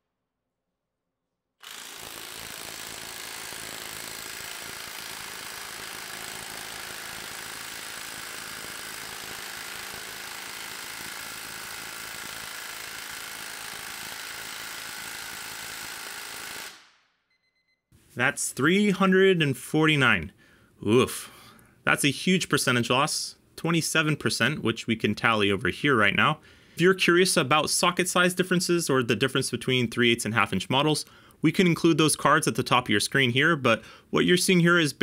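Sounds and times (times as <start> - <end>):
impact wrench hammering: 1.6 - 16.9.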